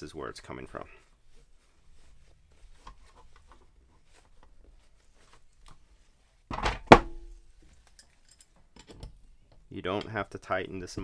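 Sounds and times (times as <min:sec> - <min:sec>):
hands rustling cloth and plastic: 0:00.2 - 0:06.5
knock and metallic clack on wood: 0:06.5 - 0:07.3.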